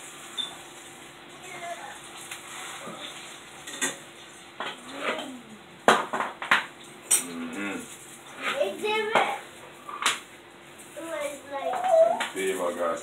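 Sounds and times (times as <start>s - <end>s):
pots and pans clattering: 2.8s - 5.3s.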